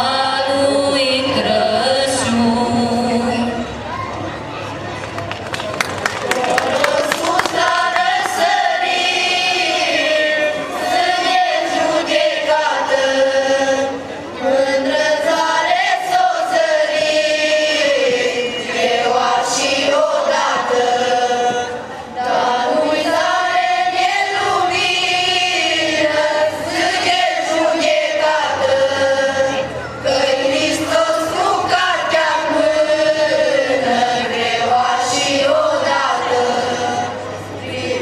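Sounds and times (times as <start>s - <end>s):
mixed choir singing a carol: 0.0s - 3.8s, 6.2s - 38.0s.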